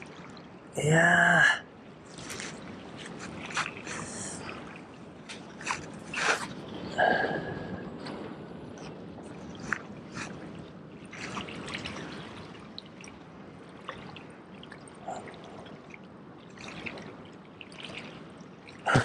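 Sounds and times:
seawater lapping against rocks: 0.0s - 0.7s, 1.9s - 19.0s.

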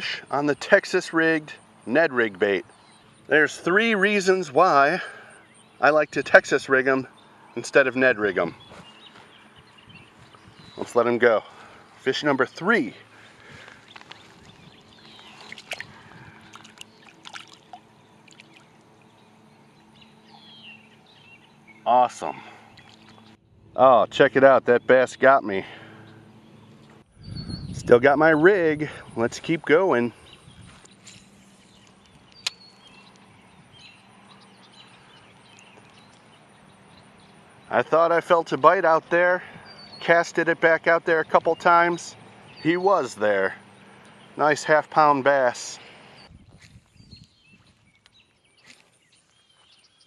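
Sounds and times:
water splashing: 14.3s - 19.1s
water dripping: 15.0s - 15.9s, 16.5s - 19.1s.

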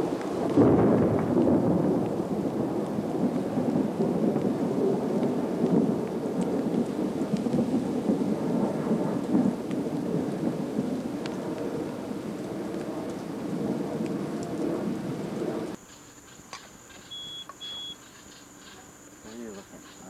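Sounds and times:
thunder rumbling: 0.0s - 15.8s.

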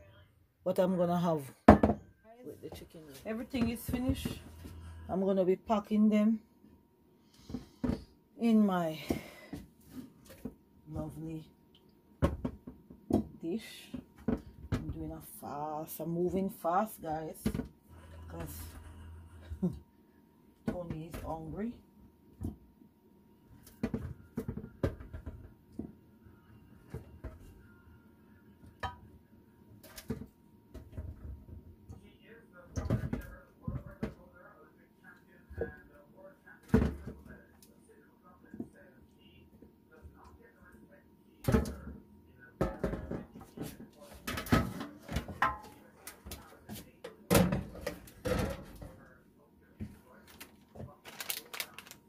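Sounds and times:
metal roasting pan knocks and clatters: 44.3s - 45.8s.

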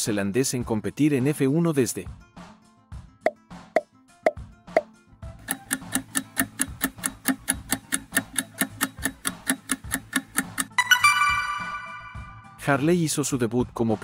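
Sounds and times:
countdown timer ticking: 5.4s - 12.4s.

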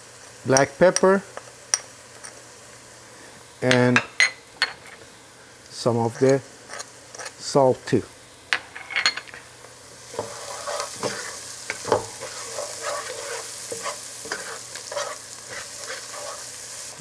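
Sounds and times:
onion sizzling in oil: 0.0s - 17.0s
wooden spoon scraping a pot: 10.1s - 16.6s.

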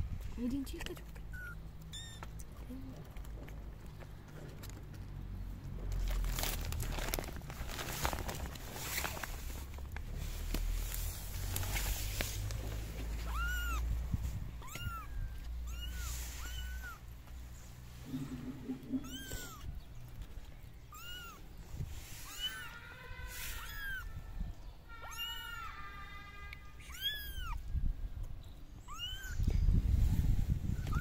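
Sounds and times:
kitten mewing: 13.0s - 17.0s, 18.3s - 19.7s, 20.9s - 21.4s, 22.2s - 24.1s, 26.8s - 27.6s, 28.9s - 29.5s.

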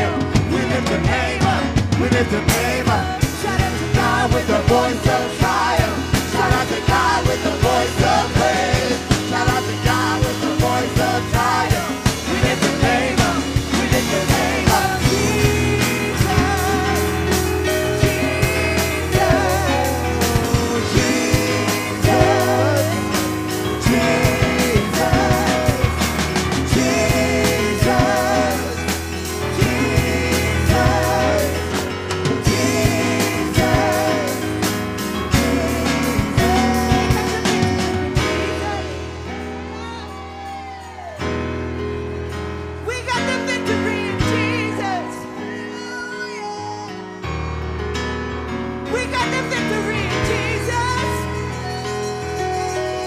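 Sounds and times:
voices singing: 0.0s - 39.6s
sustained bass line: 0.0s - 39.9s
driving drum beat: 0.0s - 40.0s
person singing: 32.5s - 41.4s.

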